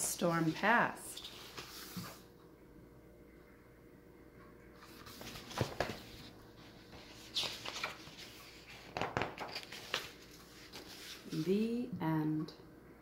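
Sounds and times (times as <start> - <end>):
book handling rustles: 0.4 - 2.3, 4.8 - 11.7.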